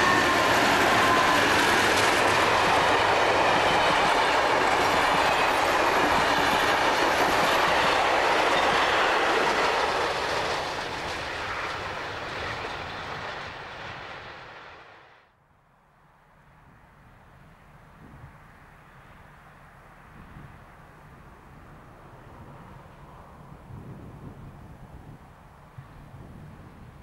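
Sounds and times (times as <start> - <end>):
train wheels clattering on rails: 0.0 - 14.3
diesel locomotives passing: 0.0 - 15.3, 16.4 - 27.0.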